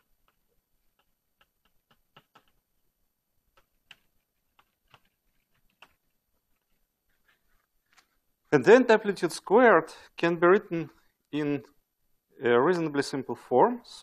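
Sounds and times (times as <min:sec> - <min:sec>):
chalk tapping on blackboard: 0:00.2 - 0:02.6.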